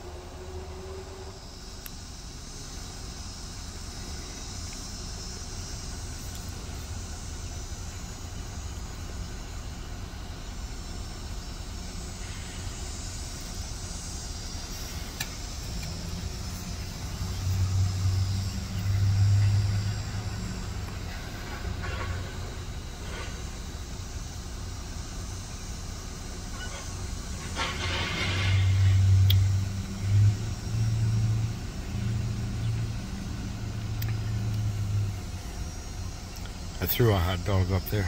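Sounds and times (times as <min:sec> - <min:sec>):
low outdoor rumble: 0:00.0 - 0:38.0
motor vehicle passing: 0:15.9 - 0:22.3.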